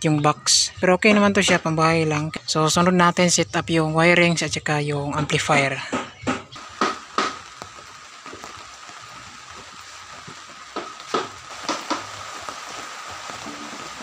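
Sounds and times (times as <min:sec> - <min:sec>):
heavy rain hissing: 0:06.6 - 0:14.0.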